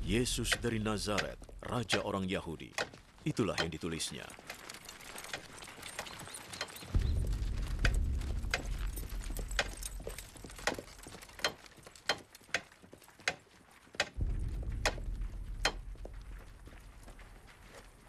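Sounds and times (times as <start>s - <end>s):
low rumble: 6.9s - 11.0s, 14.2s - 18.0s.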